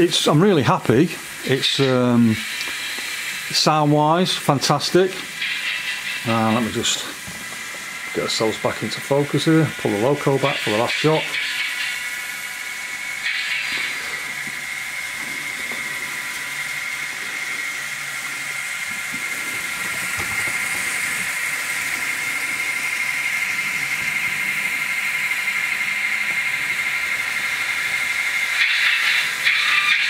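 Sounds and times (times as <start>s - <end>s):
model train electric whine and hiss: 0.0s - 30.0s.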